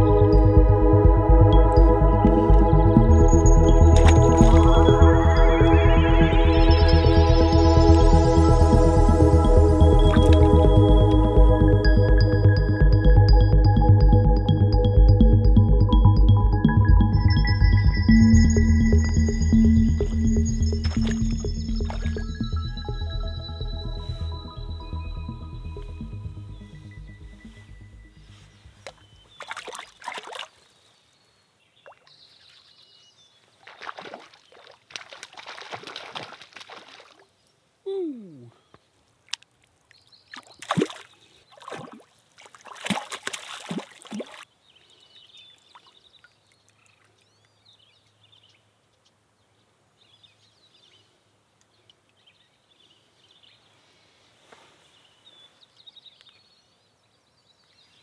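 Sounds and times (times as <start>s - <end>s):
fish splashing in water: 3.9s - 5.0s, 9.9s - 10.8s, 20.8s - 22.3s, 28.8s - 30.6s, 33.6s - 37.3s, 40.3s - 44.5s.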